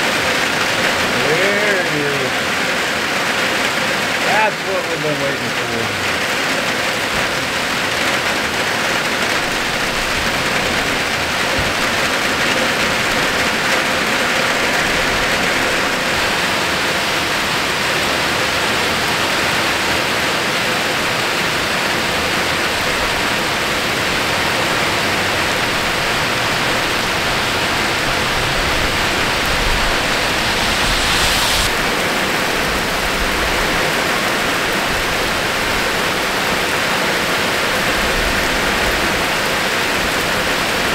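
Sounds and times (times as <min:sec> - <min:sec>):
heavy rain pouring: 0:00.0 - 0:40.9
water splashing on road: 0:01.9 - 0:40.9.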